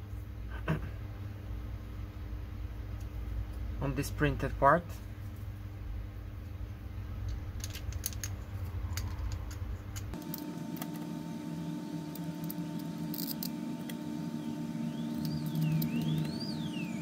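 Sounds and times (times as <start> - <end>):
plastic parts clicking: 7.2 - 10.4.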